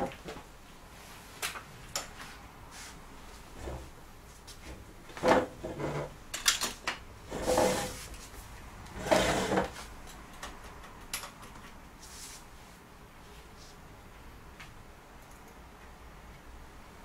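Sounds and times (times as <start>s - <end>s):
short scraping slides: 7.3s - 8.1s, 9.0s - 9.8s
sharp clicks and knocks: 10.0s - 11.8s.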